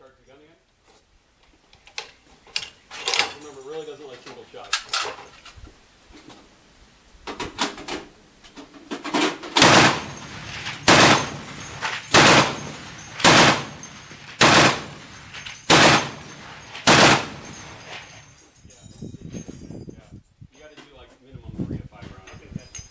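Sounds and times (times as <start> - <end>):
heavy machine gun shots: 9.2 - 18.1.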